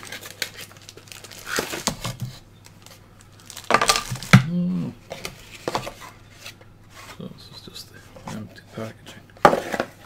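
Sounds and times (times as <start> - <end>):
plastic bag crinkling: 0.0 - 4.4.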